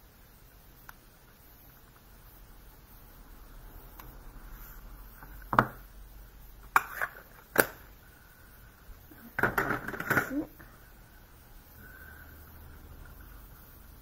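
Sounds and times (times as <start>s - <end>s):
plastic clattering: 9.3s - 10.5s.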